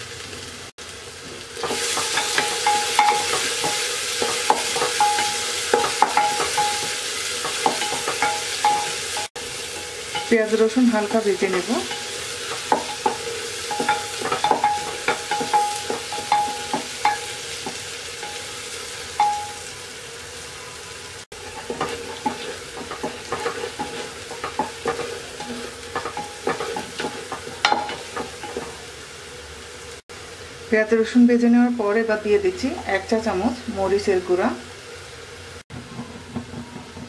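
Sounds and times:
onions sizzling in oil: 0.0 - 37.0
spatula knocking and scraping pot: 1.6 - 18.4, 21.3 - 28.8, 35.7 - 37.0.

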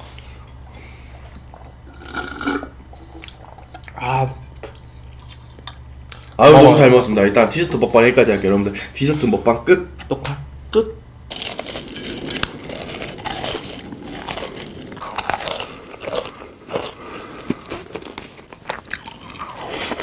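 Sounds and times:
crunching and chewing crisp food: 4.6 - 6.5, 11.3 - 20.0.

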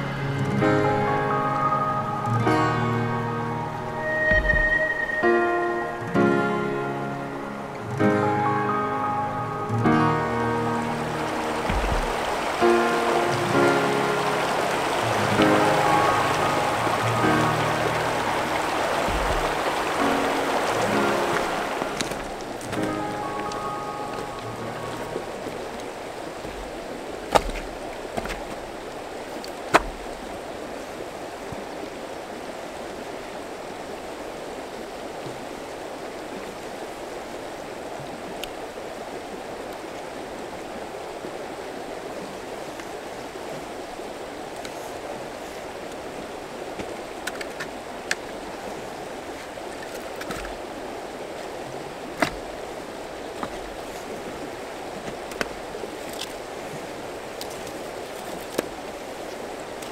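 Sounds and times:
river rushing over rocks: 0.0 - 59.9
firewood knocking: 11.6 - 12.5, 19.0 - 19.8, 26.4 - 28.7, 29.6 - 30.2.

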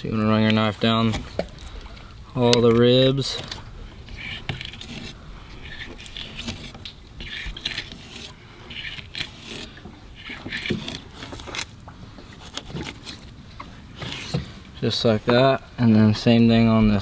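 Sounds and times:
knife scraping along fish bones: 3.3 - 13.4, 14.0 - 14.5.

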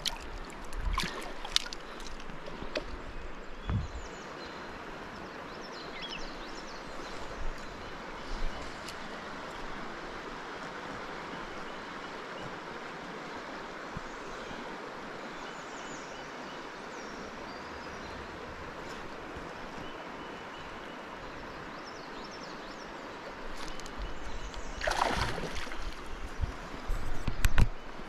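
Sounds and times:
river water rushing over riffle: 24.8 - 26.9.

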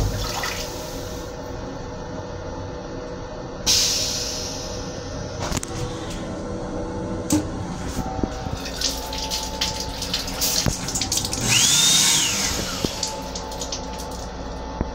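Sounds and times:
train car running rumble: 0.0 - 11.6
faucet spraying water: 8.6 - 14.3.

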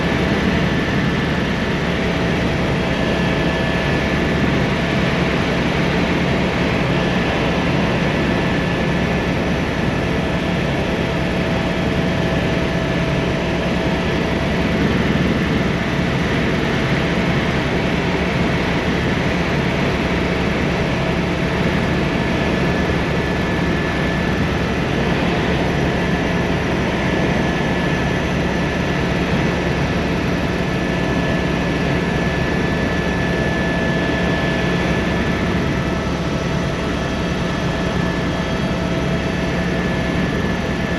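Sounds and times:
helicopter engine and rotors: 0.0 - 40.9.

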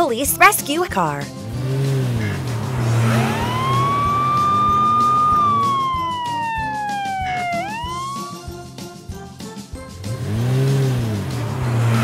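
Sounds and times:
background music: 0.0 - 12.0
police siren wailing: 2.2 - 8.5.

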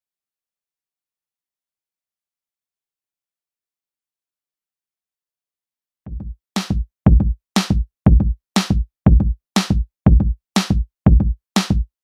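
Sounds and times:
drum machine beat: 6.1 - 12.0.

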